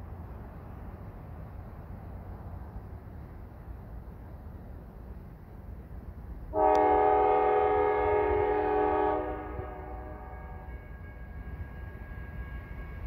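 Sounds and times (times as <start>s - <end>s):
locomotive air horn blast: 6.5s - 11.4s.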